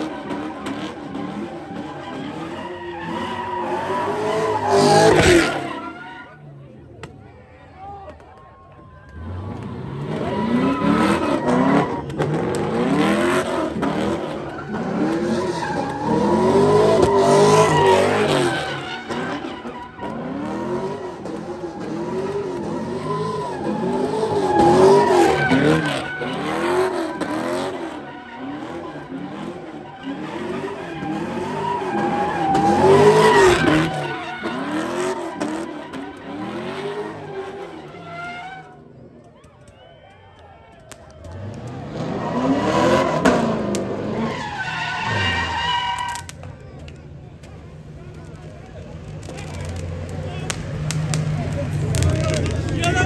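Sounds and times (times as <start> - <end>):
car engine revving: 0.0 - 6.0, 9.1 - 38.8, 40.9 - 53.0
tyres squealing: 14.2 - 38.8, 44.0 - 46.4.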